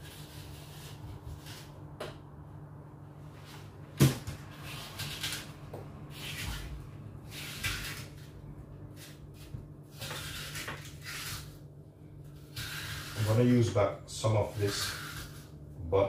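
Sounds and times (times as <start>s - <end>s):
knife scraping apple: 0.0s - 1.8s, 4.5s - 11.6s, 12.2s - 15.6s.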